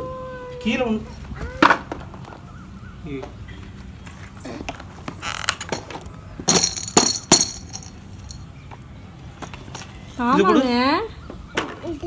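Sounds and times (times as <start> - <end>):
knocks and clinks of box handling: 5.6 - 8.4.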